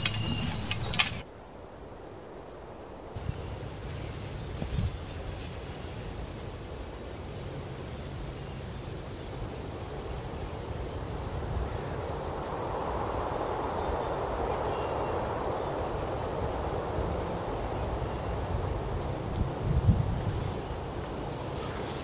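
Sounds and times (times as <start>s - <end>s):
small bird chirping: 0.0s - 1.2s
steady outdoor hiss: 0.0s - 22.0s.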